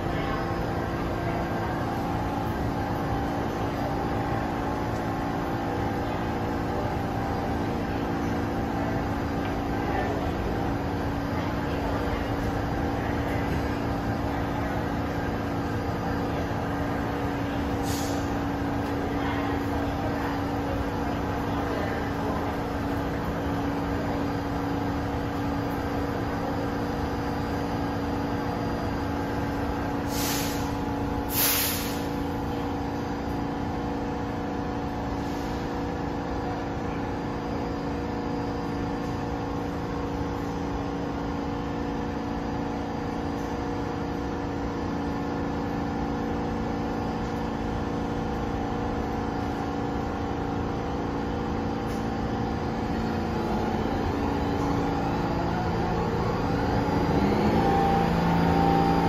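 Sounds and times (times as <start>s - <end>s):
subway train humming: 0.0s - 59.0s
short hisses: 17.8s - 18.3s, 30.1s - 30.7s, 31.3s - 32.1s.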